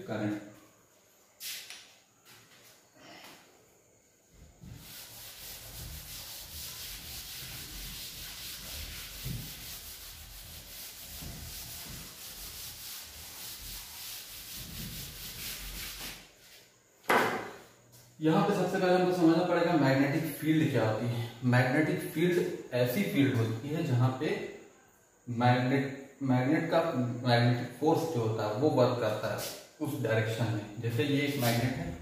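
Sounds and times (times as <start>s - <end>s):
duster rubbing on a chalkboard: 4.3s - 16.7s, 29.0s - 29.7s, 30.8s - 32.0s.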